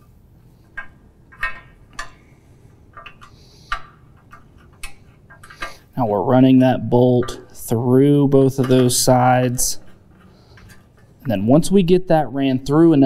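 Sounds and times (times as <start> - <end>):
light metal clicks and taps: 0.6 - 2.3, 2.9 - 5.8.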